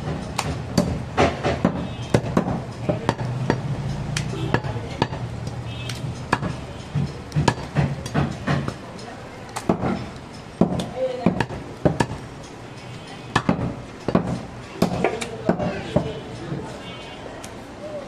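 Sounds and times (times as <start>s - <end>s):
knife chopping meat and bone: 0.0s - 5.3s, 5.9s - 8.8s, 9.5s - 12.2s, 13.3s - 16.1s.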